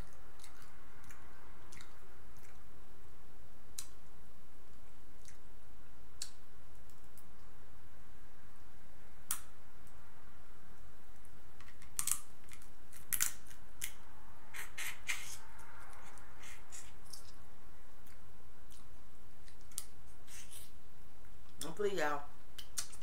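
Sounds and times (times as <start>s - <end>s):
crab shells cracking: 11.6s - 14.0s
person eating: 12.0s - 17.4s, 18.0s - 20.8s.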